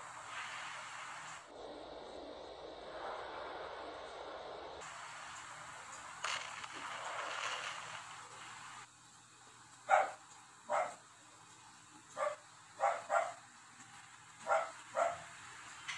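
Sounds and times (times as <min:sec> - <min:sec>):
steady rushing noise: 0:00.0 - 0:08.9
dog barking: 0:09.9 - 0:11.0, 0:12.1 - 0:13.5, 0:14.4 - 0:15.4.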